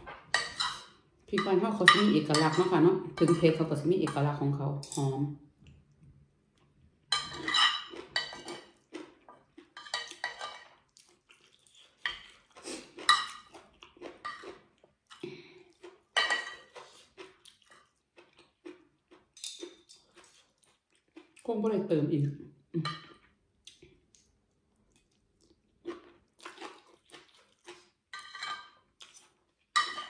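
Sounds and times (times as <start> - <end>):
cutlery clinking on ceramic plate: 0.0 - 3.5, 7.1 - 8.8, 9.8 - 10.8, 13.0 - 13.5, 14.2 - 14.6, 16.2 - 16.8, 28.1 - 28.8, 29.8 - 30.0.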